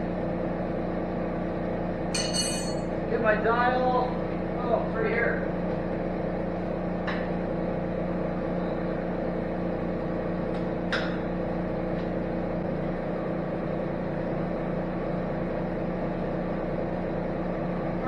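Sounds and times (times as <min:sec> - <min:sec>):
boring mill humming: 0:00.0 - 0:18.0.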